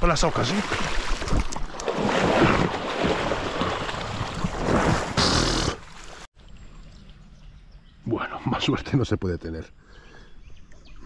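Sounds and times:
water splashing and churning: 0.0 - 7.2.

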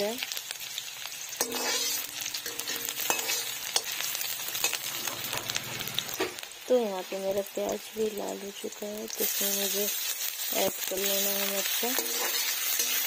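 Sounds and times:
onions sizzling in hot oil: 0.0 - 13.0
metal spatula scraping pan: 1.4 - 6.4, 11.1 - 13.0.

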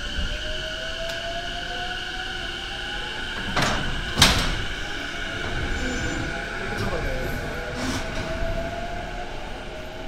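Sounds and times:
faint train whine: 0.0 - 10.0
train couplers clanking: 3.2 - 8.4.

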